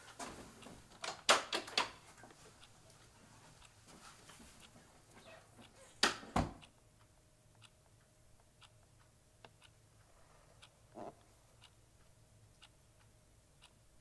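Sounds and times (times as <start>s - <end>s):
clock ticking: 0.6s - 3.8s, 4.4s - 14.0s
door shutting with knocks: 6.0s - 6.6s.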